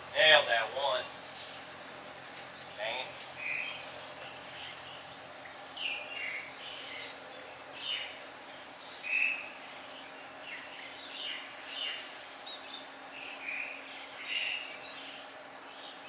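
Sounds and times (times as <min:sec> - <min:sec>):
birds chirping: 0:00.0 - 0:16.0
faint hum: 0:00.0 - 0:16.0.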